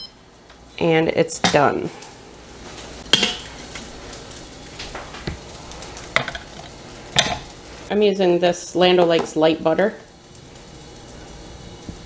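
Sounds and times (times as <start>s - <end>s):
metal tongs clacking on pot: 3.1s - 3.6s.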